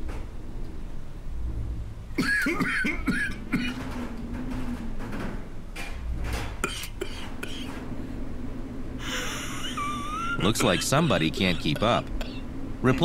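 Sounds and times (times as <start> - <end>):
person coughing and wheezing: 2.2 - 4.0, 6.6 - 7.8, 10.4 - 12.4.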